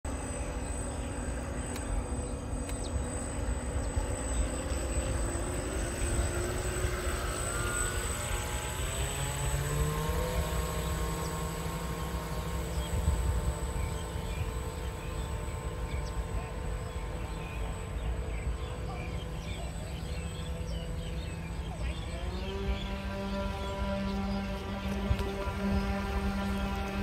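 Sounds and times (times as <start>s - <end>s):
model boat motors whining: 0.1s - 27.0s.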